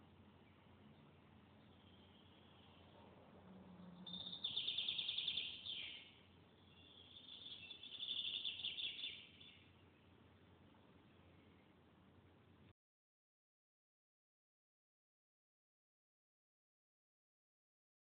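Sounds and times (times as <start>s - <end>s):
bird trilling: 4.0s - 9.6s.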